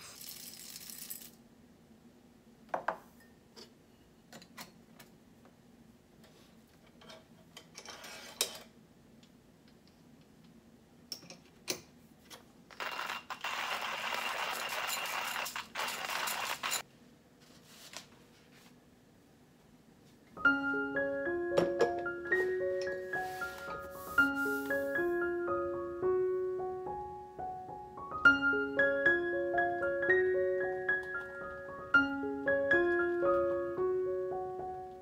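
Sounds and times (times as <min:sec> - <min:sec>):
hand coffee grinder rattling: 0:12.8 - 0:16.8.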